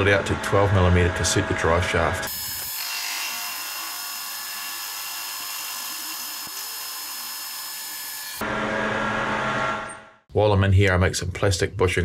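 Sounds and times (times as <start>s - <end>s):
metal lathe drilling: 2.3s - 8.4s.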